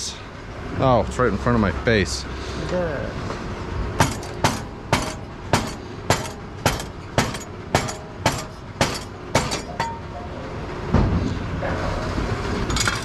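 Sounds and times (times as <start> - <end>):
mallet striking metal: 4.0 - 10.1.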